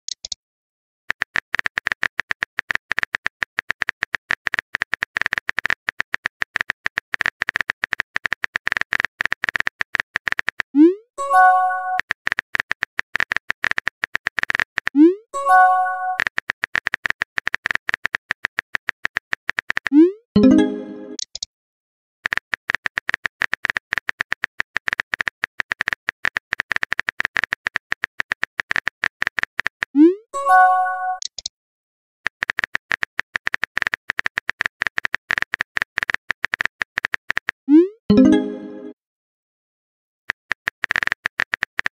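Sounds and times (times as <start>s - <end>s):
phone keyboard typing clicks: 1.1s - 10.7s, 12.0s - 21.5s, 22.2s - 30.0s, 31.2s - 31.5s, 32.3s - 37.6s, 40.3s - 41.9s
message blip: 20.4s - 21.2s, 37.7s - 39.0s.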